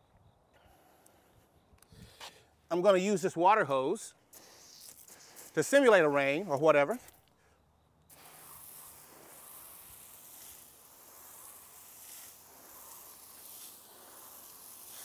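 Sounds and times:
hose spraying water: 0:02.8 - 0:07.0, 0:08.1 - 0:15.0.

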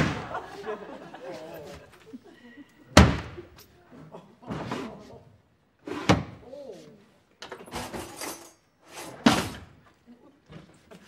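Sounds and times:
door banging shut: 0:00.0 - 0:00.4, 0:03.0 - 0:03.5
cupboards and drawers clattering: 0:07.4 - 0:09.8.

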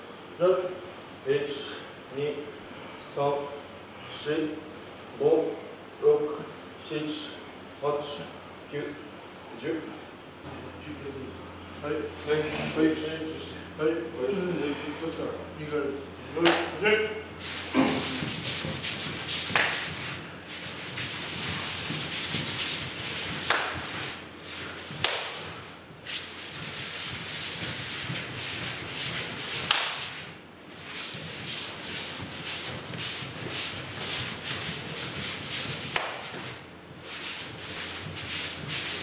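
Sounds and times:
bare feet scraping on clay: 0:17.4 - 0:39.0.

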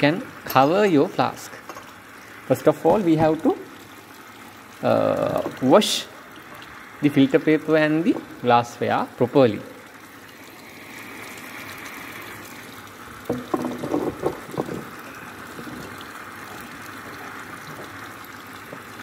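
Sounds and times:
tap water rushing: 0:00.0 - 0:19.0
glassware being handled: 0:13.3 - 0:14.9.

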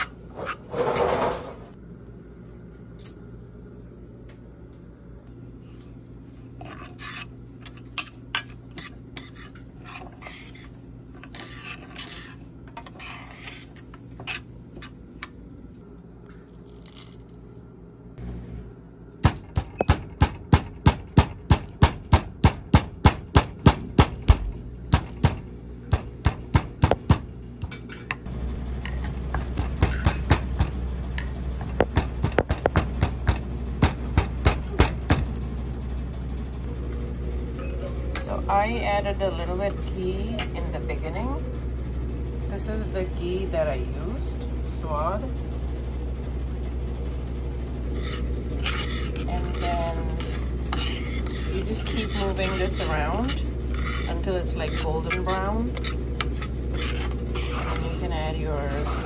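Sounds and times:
low steady hum: 0:00.0 - 0:59.0
metal spoon scraping a steel pot: 0:06.6 - 0:15.0, 0:47.9 - 0:59.0
pestle pounding in steel mortar: 0:19.2 - 0:27.8, 0:29.4 - 0:30.8, 0:31.6 - 0:35.4.

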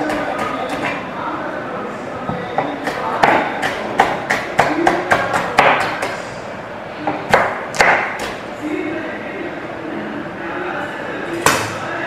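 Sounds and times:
knife chopping on cutting board: 0:02.6 - 0:06.2, 0:07.2 - 0:08.4.

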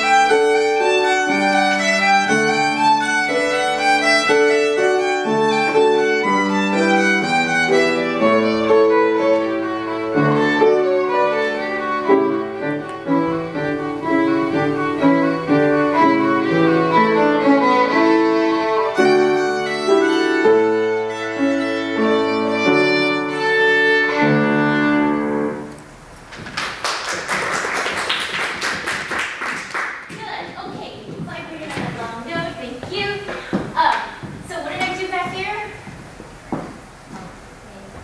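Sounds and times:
solo violin: 0:00.0 - 0:25.8
piano accompaniment: 0:00.0 - 0:27.3, 0:28.0 - 0:38.0
audience applause: 0:26.4 - 0:30.2.

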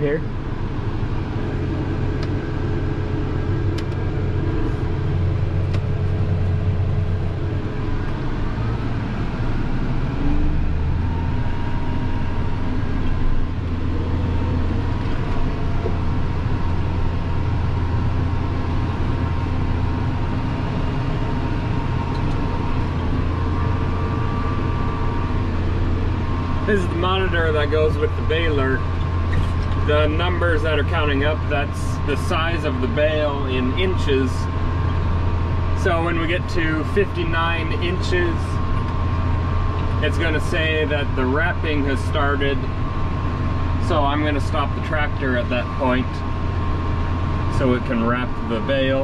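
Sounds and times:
faint steady whine: 0:00.0 - 0:49.0
round baler working: 0:00.0 - 0:49.0
tractor engine running: 0:00.0 - 0:49.0.

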